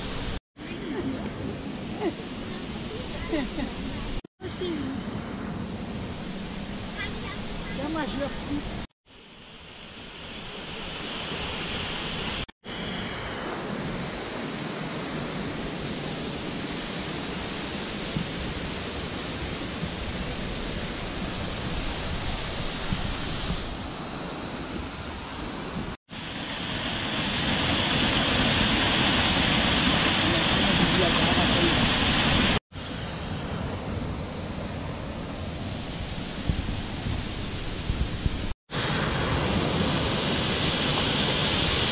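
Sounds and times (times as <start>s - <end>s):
waterfall rushing over rocks: 6.8s - 24.6s, 25.2s - 32.6s, 35.7s - 41.9s.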